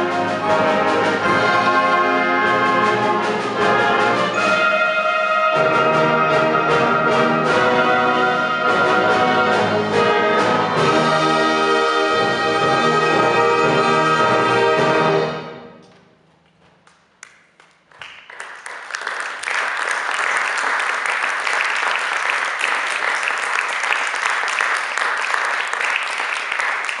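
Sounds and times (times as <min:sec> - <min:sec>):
wind band chord: 0:00.0 - 0:15.5
audience applause: 0:17.6 - 0:27.0.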